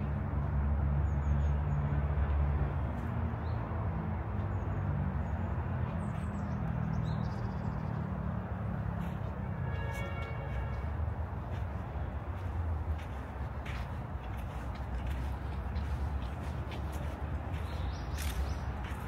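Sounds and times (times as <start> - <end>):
distant traffic rumble: 0.0 - 19.0
small birds chirping: 4.4 - 8.2, 12.0 - 19.0.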